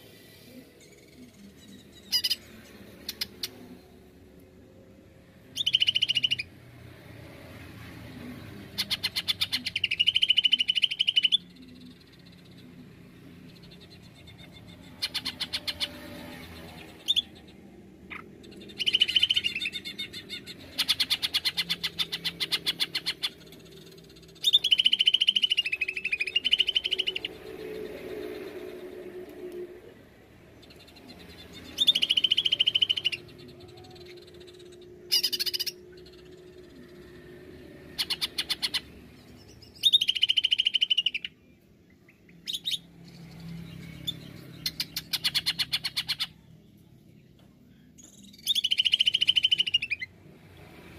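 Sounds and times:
bird singing trills and whistles: 0:05.5 - 0:06.5, 0:08.8 - 0:12.6, 0:13.6 - 0:28.4, 0:30.6 - 0:37.2, 0:37.9 - 0:41.4, 0:48.0 - 0:50.1.

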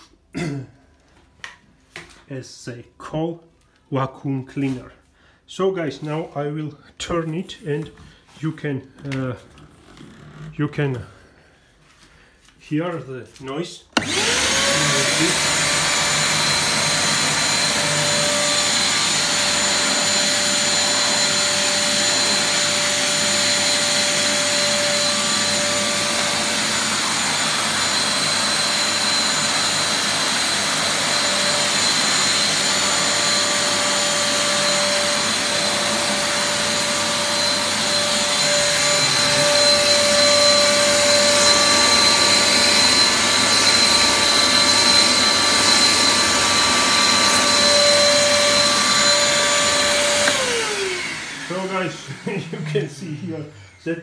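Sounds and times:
vacuum cleaner running: 0:14.0 - 0:54.0.

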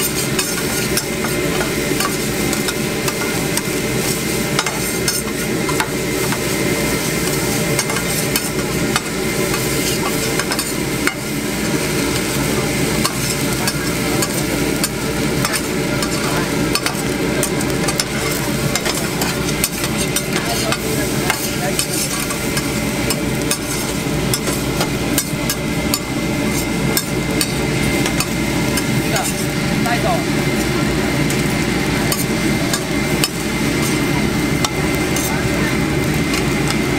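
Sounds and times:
metal spatulas scraping and clacking: 0:00.0 - 0:06.4, 0:07.2 - 0:11.2, 0:13.0 - 0:29.5, 0:32.0 - 0:34.0
rice sizzling on griddle: 0:00.0 - 0:36.9.

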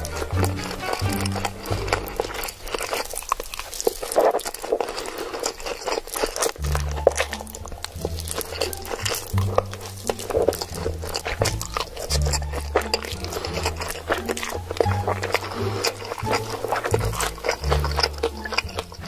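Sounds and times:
background music with bass: 0:00.0 - 0:02.5, 0:06.6 - 0:19.0
noodle slurping: 0:00.0 - 0:19.0.

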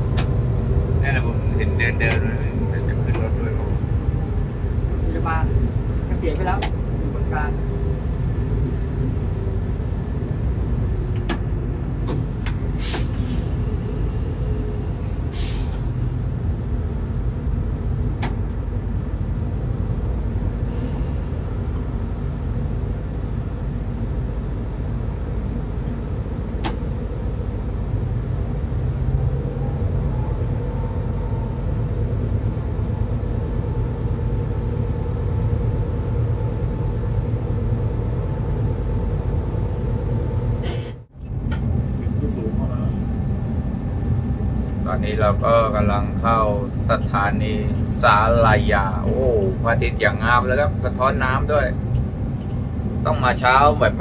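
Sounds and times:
locomotive engine and wheel rumble: 0:00.0 - 0:54.0
short hisses: 0:12.8 - 0:14.3, 0:15.3 - 0:15.9, 0:20.6 - 0:21.5.

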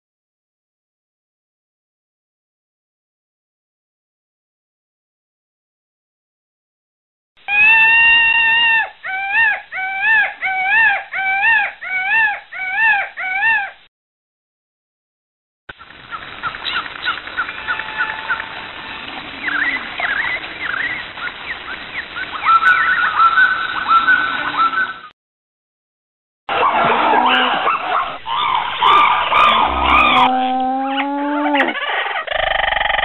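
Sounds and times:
birds chirping and whistling: 0:16.4 - 0:25.1, 0:27.8 - 0:32.3
rising-and-falling hoots: 0:26.5 - 0:33.0
long pitched animal call: 0:28.2 - 0:33.0.

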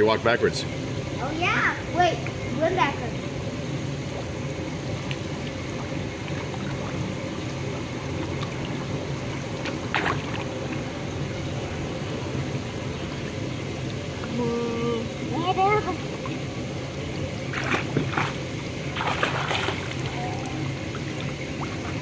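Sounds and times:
pool water sloshing: 0:03.3 - 0:22.0
child kicking and splashing: 0:19.0 - 0:20.2.

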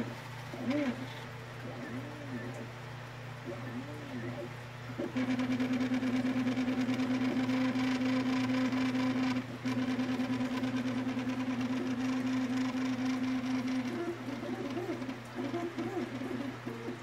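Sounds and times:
fast fine ticking of print head: 0:03.5 - 0:17.0.

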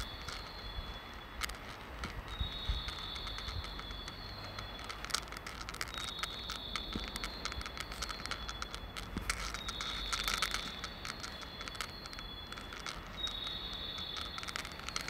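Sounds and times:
rapid clicking and rattling: 0:00.0 - 0:15.0.

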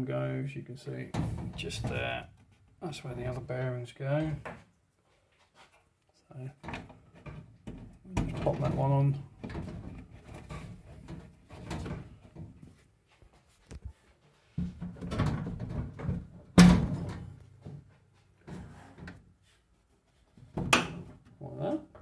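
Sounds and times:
clunks and knocks on dryer frame: 0:01.1 - 0:02.2, 0:06.6 - 0:12.7, 0:14.6 - 0:19.2.

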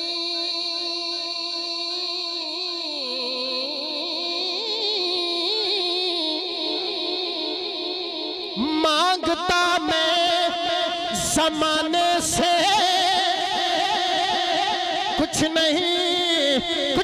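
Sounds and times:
person singing a long wavering note: 0:00.0 - 0:10.6.

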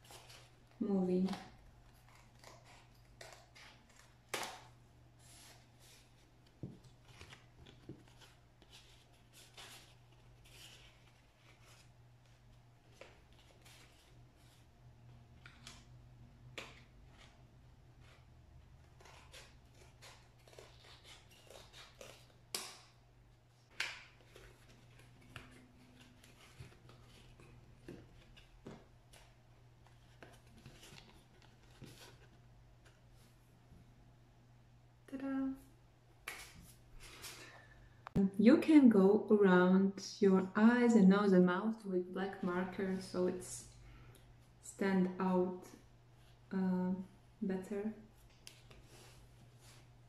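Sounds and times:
scissors snipping paper: 0:18.8 - 0:22.9
paper rustling: 0:23.7 - 0:33.3.

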